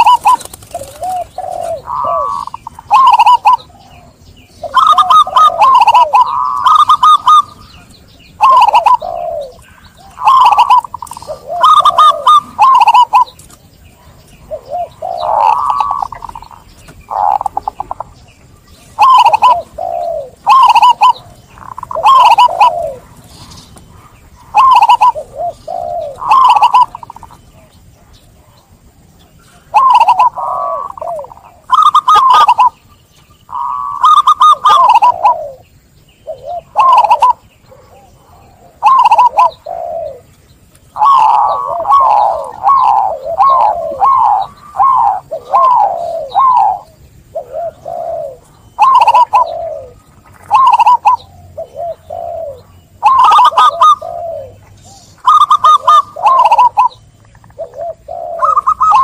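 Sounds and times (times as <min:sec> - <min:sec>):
dove cooing: 0:00.0 - 0:59.0.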